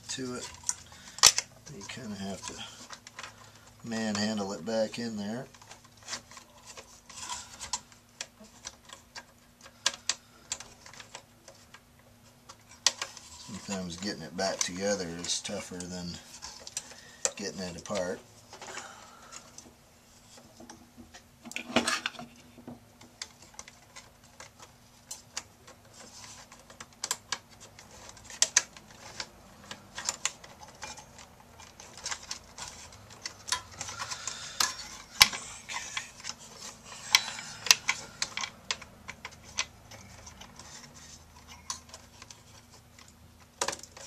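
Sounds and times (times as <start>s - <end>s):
computer parts clicking and rattling: 23.0s - 44.0s.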